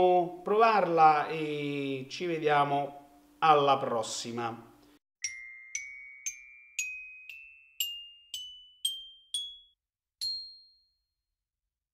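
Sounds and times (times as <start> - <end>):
bell-like chime jingle: 5.2 - 11.2.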